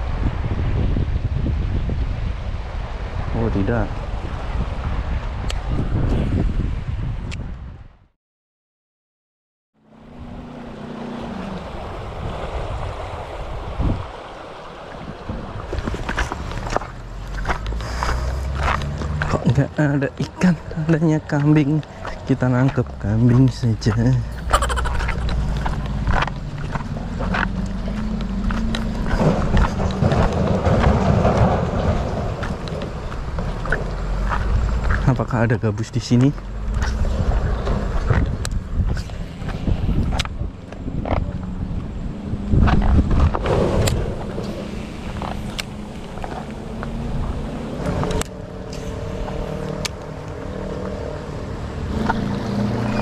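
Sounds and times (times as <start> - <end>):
river water rushing over stones: 9.9 - 38.8, 43.4 - 53.0
footsteps on loose cobbles: 15.8 - 19.7, 21.4 - 35.2.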